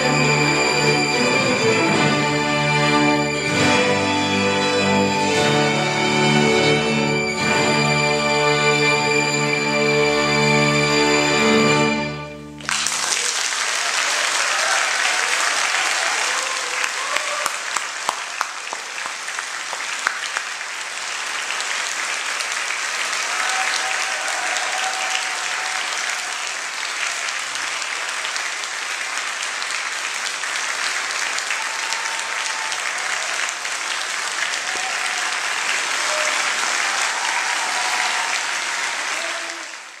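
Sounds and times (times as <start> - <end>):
audience applauding: 12.6 - 40.0.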